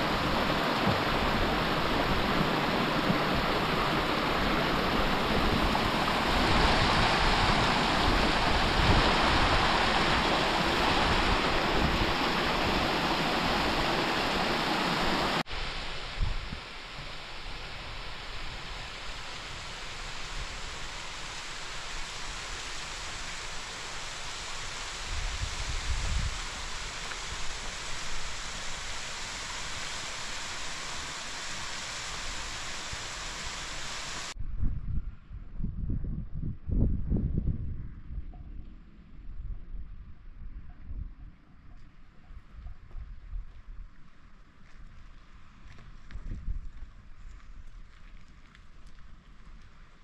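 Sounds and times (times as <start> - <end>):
water rushing: 0.0 - 34.4
thin hiss: 13.2 - 34.4.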